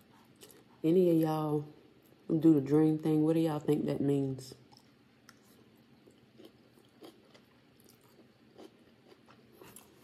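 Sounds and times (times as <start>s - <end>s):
chewing food: 0.0s - 0.8s, 4.6s - 10.0s.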